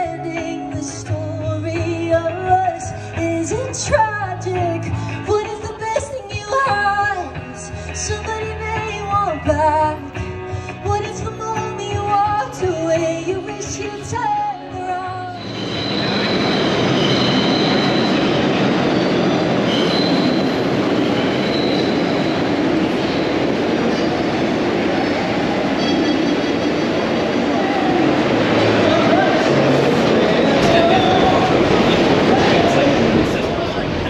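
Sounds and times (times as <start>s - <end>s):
pop song with singing: 0.0s - 15.4s
subway train rumble: 0.0s - 34.0s
train wheel squeals: 15.3s - 27.1s, 30.1s - 33.3s.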